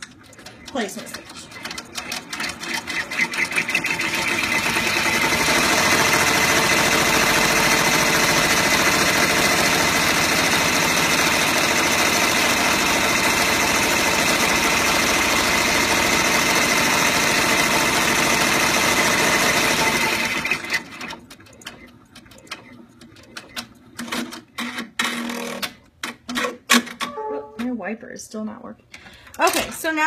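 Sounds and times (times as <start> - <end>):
scattered clicks and knocks: 0.0 - 4.4, 20.4 - 27.7
embroidery machine needle clatter: 0.0 - 27.0.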